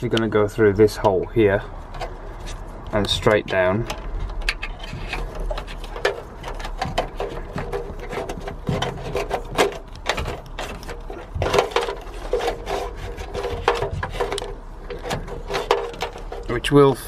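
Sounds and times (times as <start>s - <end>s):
cable scraping against metal: 0.0s - 16.8s
squeaky rubbing: 4.5s - 16.6s.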